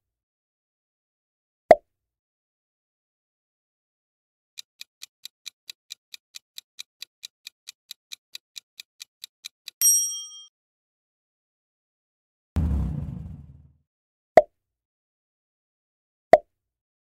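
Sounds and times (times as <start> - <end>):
clock-like ticks: 4.6 - 9.8
ringing bell ding: 9.8 - 10.5.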